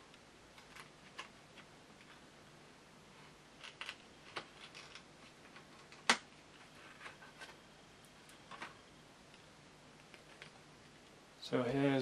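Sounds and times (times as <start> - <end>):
packaging clicks and crackles: 3.6 - 6.2.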